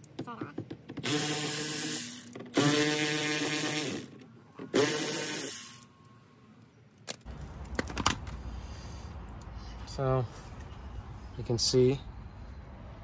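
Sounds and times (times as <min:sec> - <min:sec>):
cordless drill spinning: 0:01.0 - 0:04.1, 0:04.7 - 0:05.9.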